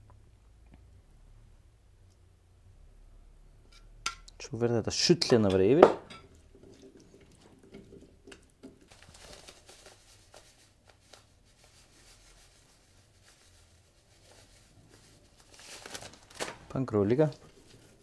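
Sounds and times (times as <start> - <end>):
plastic bag crinkling: 8.8 - 18.0.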